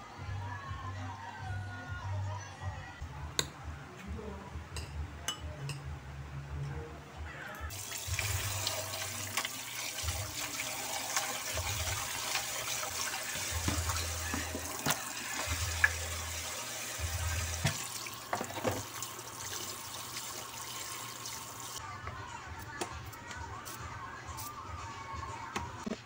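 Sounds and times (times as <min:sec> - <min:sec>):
tap water running into a basin: 0:07.7 - 0:21.8.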